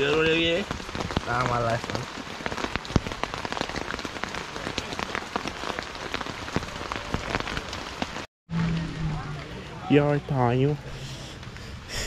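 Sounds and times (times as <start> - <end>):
raindrops tapping on fabric: 0.0 - 8.3
rain hissing on a tent: 0.0 - 12.0.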